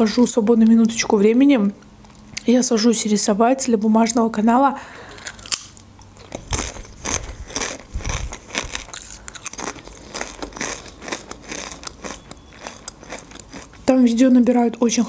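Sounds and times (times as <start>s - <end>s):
crunching tortilla chips: 5.1s - 13.9s.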